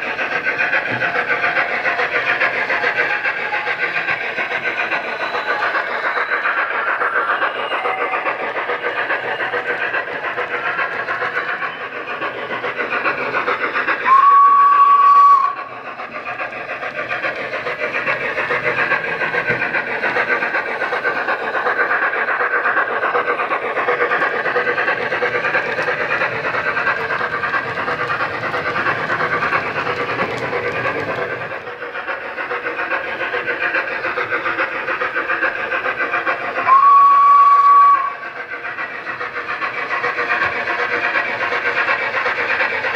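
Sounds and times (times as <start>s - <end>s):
steam locomotive running sound: 0.0s - 42.9s
steam whistle blasts: 14.1s - 15.7s, 36.6s - 38.2s.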